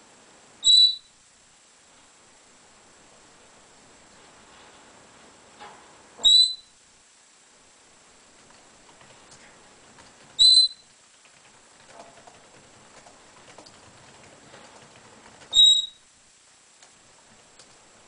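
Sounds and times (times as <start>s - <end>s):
parrot whistled calls: 0.6s - 1.1s, 6.2s - 6.8s, 10.4s - 10.8s, 15.5s - 16.0s
faint rustling and ticking: 8.2s - 15.6s, 16.7s - 18.0s.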